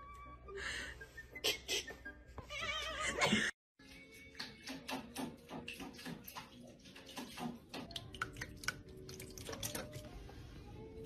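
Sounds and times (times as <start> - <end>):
cats splashing water in bowls: 3.8 - 10.3.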